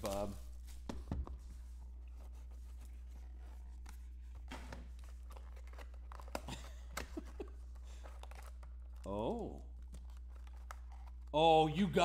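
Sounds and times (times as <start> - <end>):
card packaging rustling: 0.0 - 12.0
low electrical hum: 0.0 - 12.0.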